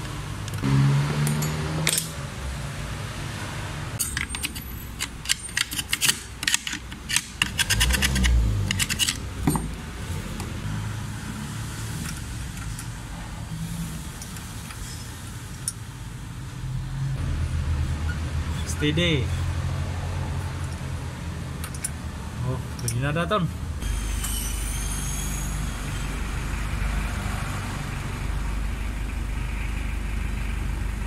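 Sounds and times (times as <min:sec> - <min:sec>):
metal parts clicking and rattling: 0:04.0 - 0:09.8.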